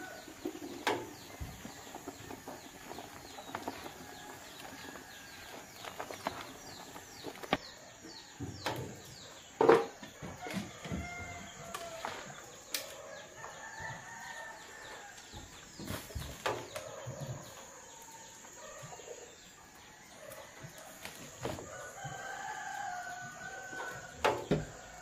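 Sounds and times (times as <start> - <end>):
rooster crowing: 10.4 - 12.2, 13.1 - 15.2, 21.6 - 25.0.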